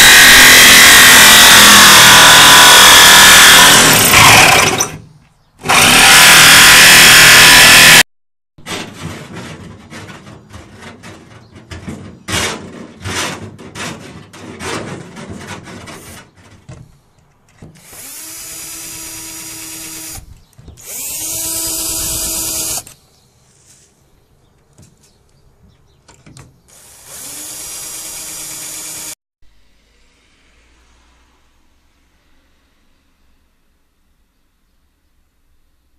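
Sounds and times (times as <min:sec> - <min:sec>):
cordless drill boring into plastic: 0:00.0 - 0:05.0, 0:05.6 - 0:08.0, 0:17.8 - 0:23.0, 0:26.8 - 0:29.2
knocks and scraping: 0:08.6 - 0:18.0, 0:20.2 - 0:26.7.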